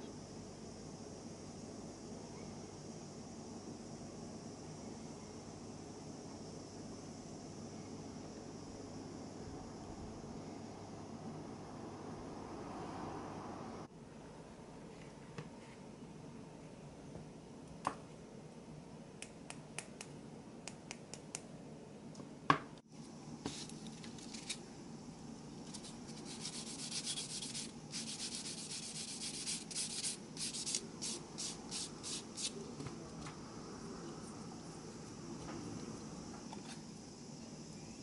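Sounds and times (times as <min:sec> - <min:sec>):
sanding stick scratching plastic: 0:25.7 - 0:32.6.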